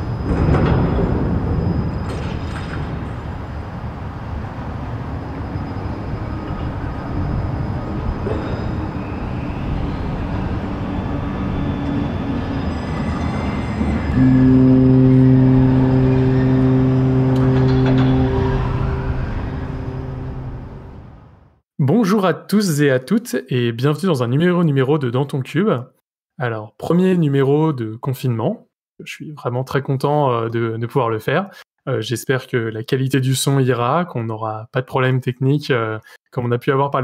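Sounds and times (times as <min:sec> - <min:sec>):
loud sustained low tone: 0:14.2 - 0:21.4
steady rumbling: 0:14.2 - 0:21.5.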